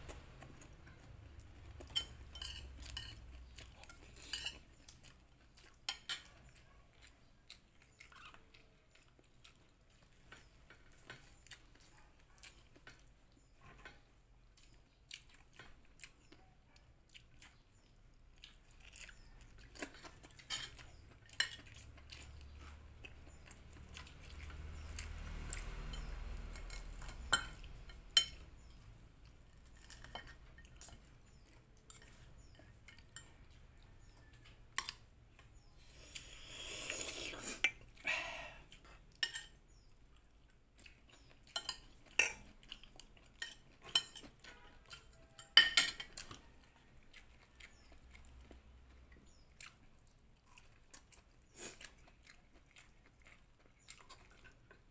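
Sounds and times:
close chewing: 0:00.0 - 0:54.9
cutlery scraping a plate: 0:01.8 - 0:04.9, 0:05.8 - 0:06.3, 0:20.0 - 0:22.3, 0:25.4 - 0:28.7, 0:29.7 - 0:33.4, 0:38.9 - 0:39.6, 0:41.5 - 0:42.5, 0:43.4 - 0:46.4
cutlery clinks: 0:01.9 - 0:03.2, 0:45.3 - 0:46.2.

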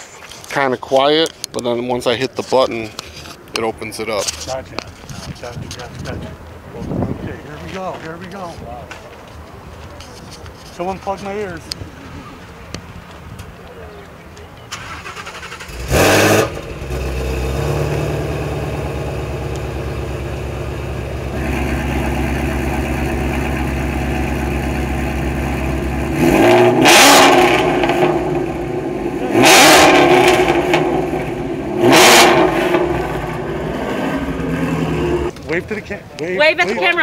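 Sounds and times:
car engine revving: 0:14.8 - 0:35.3
car engine idling: 0:14.8 - 0:35.4.

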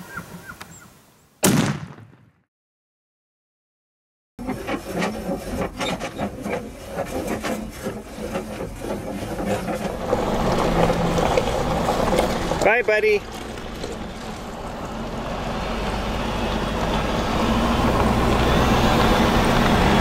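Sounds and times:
rattles and knocks: 0:04.4 - 0:14.8
truck engine hum: 0:04.4 - 0:20.0.

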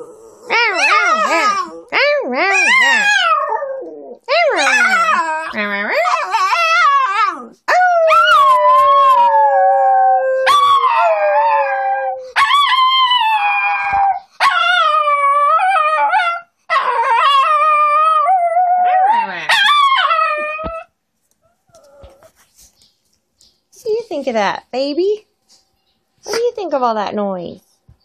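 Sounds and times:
small dog howling: 0:00.0 - 0:20.9.

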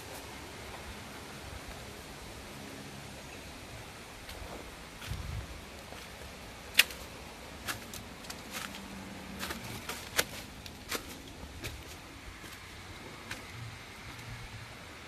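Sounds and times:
steady outdoor hiss: 0:00.0 - 0:15.0
footsteps walking: 0:04.2 - 0:14.3.

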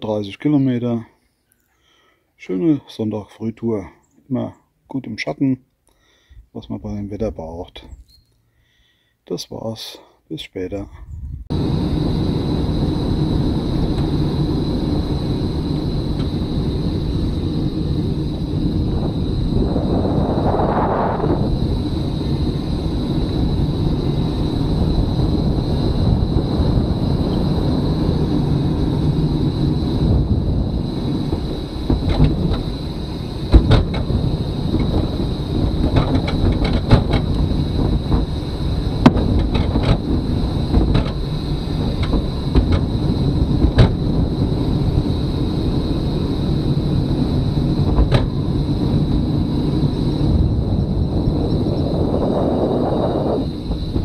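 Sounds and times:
thin high whine: 0:11.5 - 0:54.0
tyres and drivetrain rumbling: 0:11.5 - 0:54.0
knocks and rattles from bumps: 0:31.0 - 0:44.3, 0:47.8 - 0:49.1.

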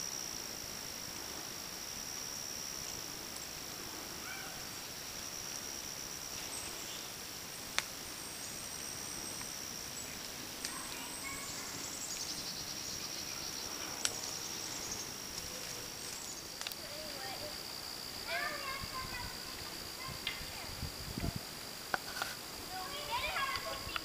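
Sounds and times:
high-pitched insect trill: 0:00.0 - 0:24.0
pulsing insect trill: 0:00.0 - 0:24.0.

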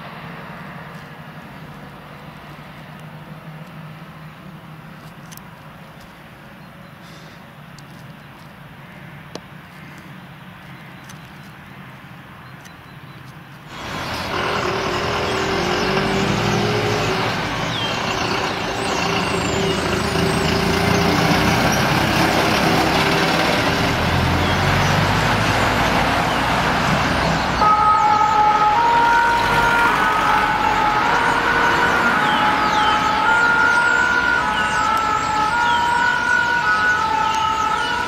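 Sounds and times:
street traffic: 0:00.0 - 0:38.0
fire engine engine running: 0:13.7 - 0:38.0
two-tone siren: 0:27.6 - 0:38.0.

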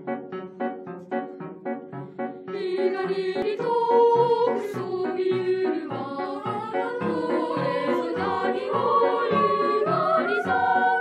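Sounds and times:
children's choir singing: 0:02.5 - 0:11.0.

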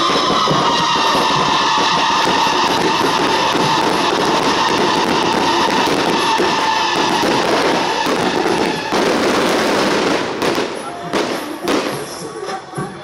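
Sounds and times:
firecrackers crackling: 0:00.0 - 0:13.0
loud music: 0:00.0 - 0:13.0.

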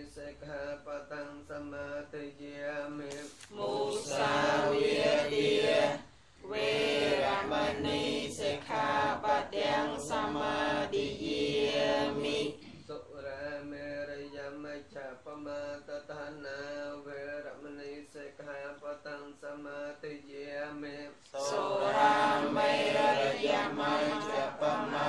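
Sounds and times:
group of voices chanting: 0:03.5 - 0:12.7, 0:21.4 - 0:25.0.

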